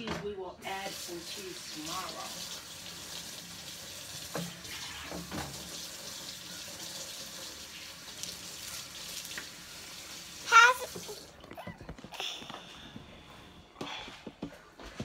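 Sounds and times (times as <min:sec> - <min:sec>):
child's high-pitched vocal sound: 0:10.5 - 0:12.3.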